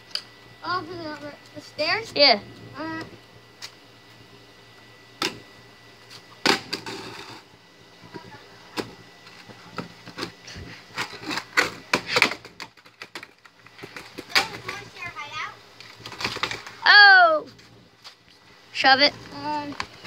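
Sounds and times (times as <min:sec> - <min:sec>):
skateboard knocking on concrete: 0:11.0 - 0:15.1, 0:16.0 - 0:16.7.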